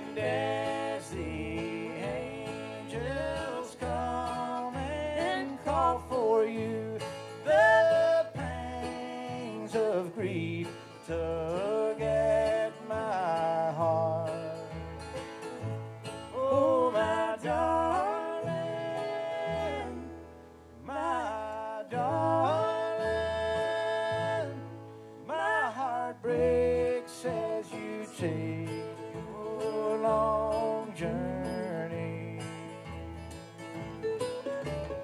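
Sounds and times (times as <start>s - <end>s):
woman singing: 0.0s - 9.9s, 16.4s - 20.3s
acoustic guitar strumming: 0.0s - 35.0s
mandolin: 0.0s - 35.0s.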